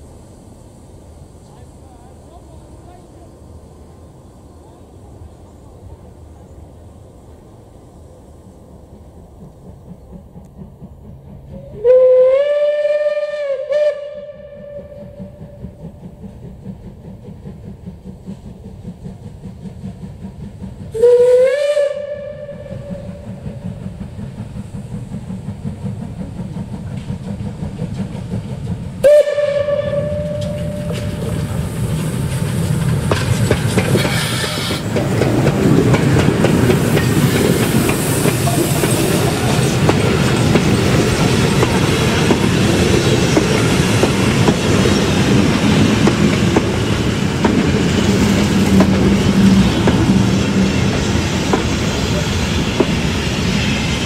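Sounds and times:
locomotive exhaust chuffing: 9.1 - 54.0
steam locomotive whistle: 11.5 - 15.7, 20.9 - 23.4, 29.0 - 31.4, 34.0 - 34.9
wheels clattering on rails: 22.6 - 54.0.

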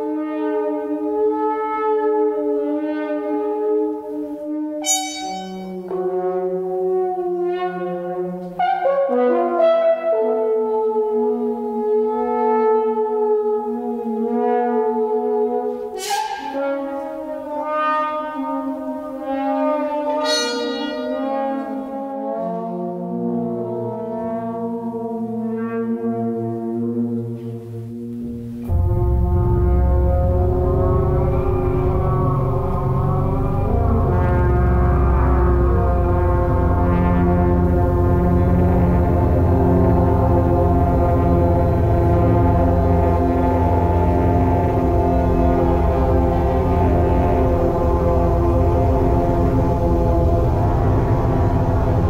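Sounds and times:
french horns holding notes: 0.0 - 52.0
electronic horn-like tones: 4.8 - 6.2, 15.9 - 18.3, 20.0 - 22.4.

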